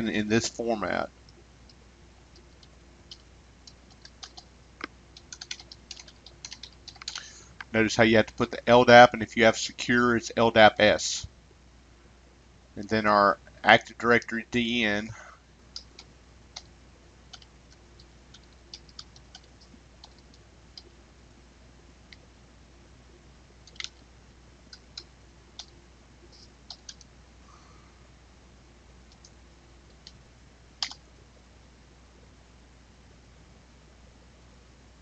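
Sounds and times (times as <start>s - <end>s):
keyboard typing: 2.3s - 7.3s, 15.7s - 16.7s, 17.3s - 20.9s, 23.6s - 24.0s, 24.7s - 25.8s, 26.4s - 27.1s, 30.8s - 31.0s.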